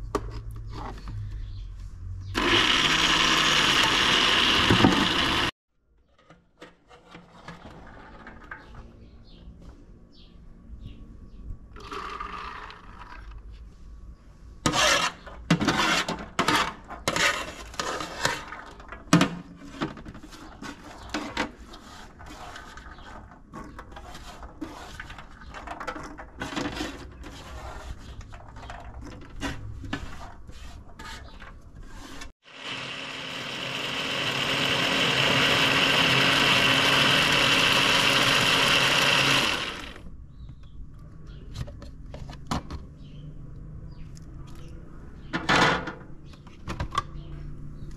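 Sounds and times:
electric blender running: 2.4 - 5.6, 11.8 - 12.9, 32.4 - 40.1
plastic bowl scraping metal tray: 14.7 - 32.3.

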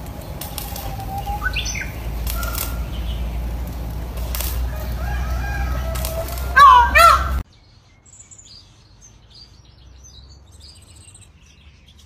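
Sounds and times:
feathers rustling: 0.0 - 7.4
faint bird chirps: 0.4 - 3.3.

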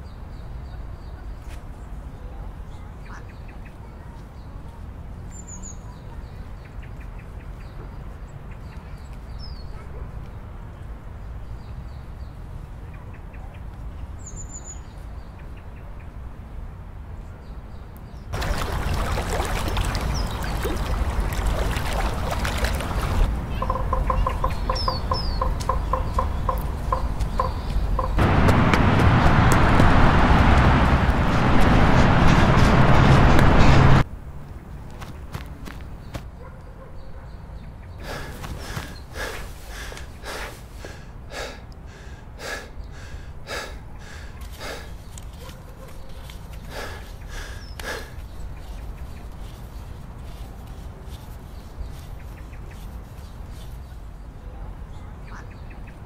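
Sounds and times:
high bird chirps: 23.5 - 28.2
man breathing heavily: 38.0 - 45.2, 46.5 - 48.4.

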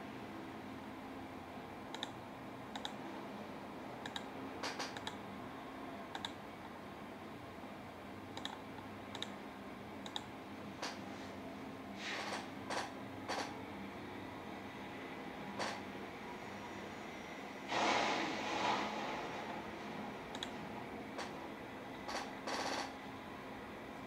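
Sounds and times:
computer mouse button clicking: 1.9 - 3.0, 4.0 - 5.2, 6.1 - 6.4, 8.4 - 9.3, 20.3 - 20.5.

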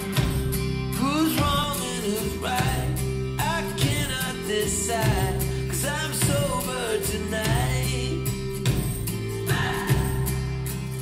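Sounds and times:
guitar: 0.0 - 11.0
person singing: 1.0 - 11.0.

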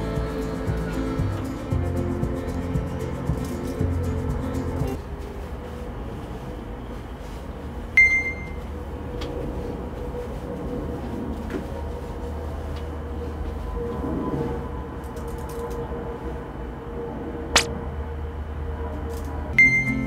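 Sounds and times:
steady low hum: 0.0 - 15.0
electronic beep: 8.0 - 8.6, 19.6 - 20.0.

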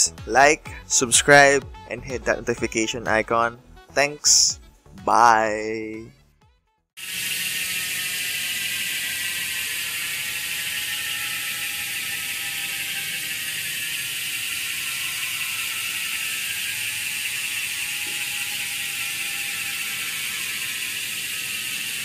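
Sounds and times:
bicycle freehub ticking whir: 7.0 - 22.0.

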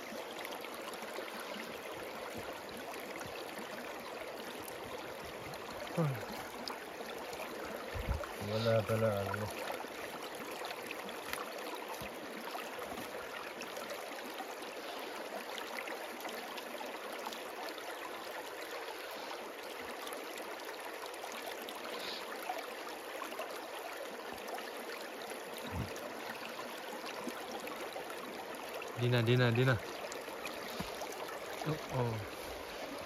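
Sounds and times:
stream running over rocks: 0.0 - 33.0.

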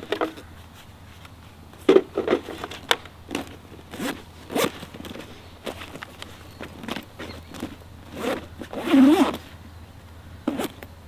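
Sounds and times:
zipper being pulled closed: 3.3 - 6.0, 6.8 - 9.5, 10.5 - 10.8.

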